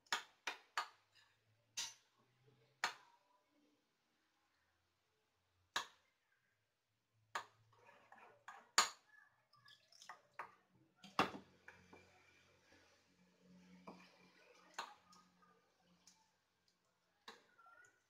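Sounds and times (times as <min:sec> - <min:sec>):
water pouring: 0:09.5 - 0:11.2.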